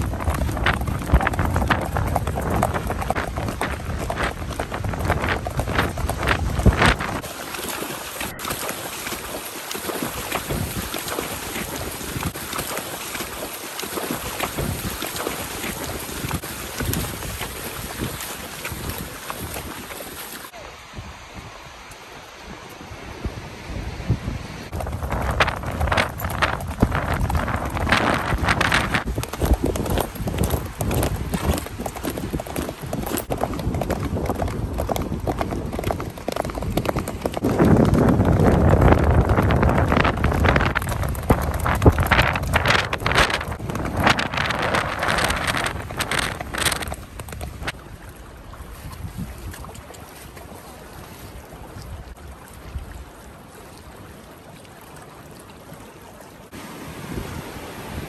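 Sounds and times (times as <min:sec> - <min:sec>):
wind rushing over microphone: 0:00.0 - 0:07.3, 0:10.4 - 0:12.4, 0:15.7 - 0:19.8, 0:20.8 - 0:47.8, 0:48.8 - 0:49.6
horse hooves clip-clopping: 0:00.0 - 0:20.6, 0:24.7 - 0:51.9.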